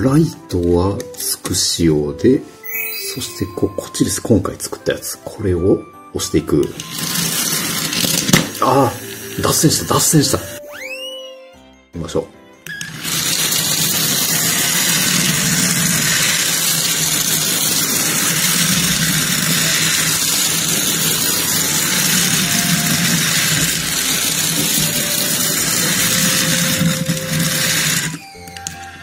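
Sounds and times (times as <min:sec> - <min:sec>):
toy train motor whirring: 0:06.7 - 0:10.6, 0:12.7 - 0:29.0.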